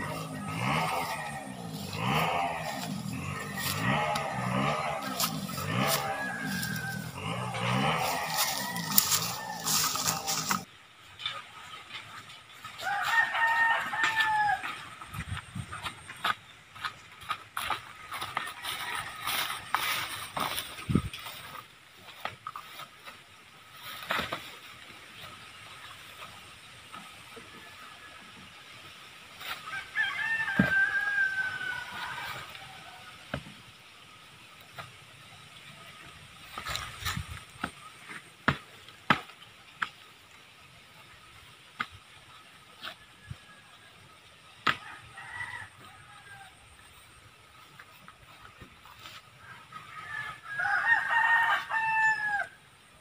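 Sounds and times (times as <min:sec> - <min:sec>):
steps rustling through grass: 0:00.0 - 0:10.7, 0:15.3 - 0:26.8
wooden logs knocking and scraping: 0:00.0 - 0:27.6, 0:29.3 - 0:43.4, 0:44.4 - 0:51.9
wooden logs knocking: 0:36.5 - 0:40.0.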